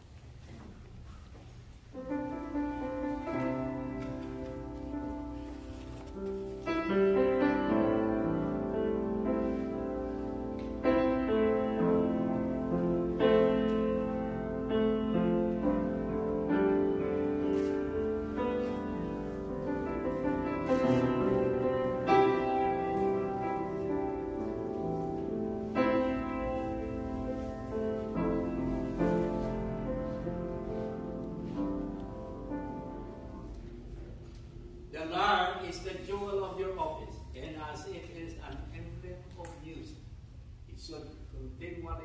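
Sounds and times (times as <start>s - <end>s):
slow keyboard chords: 2.0s - 35.0s.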